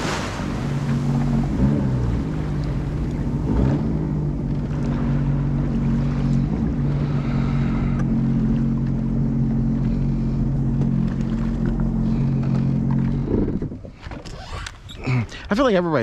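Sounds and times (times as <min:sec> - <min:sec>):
jet ski engine running: 0:00.0 - 0:16.0.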